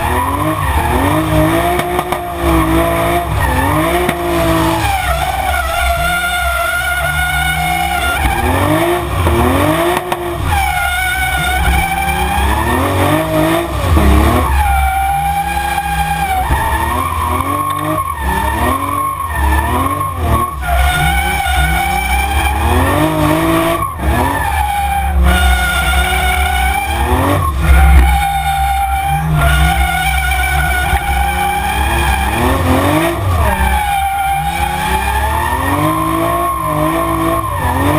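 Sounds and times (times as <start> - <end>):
car engine revving: 0.0 - 37.9
tyres skidding and squealing: 0.0 - 37.9.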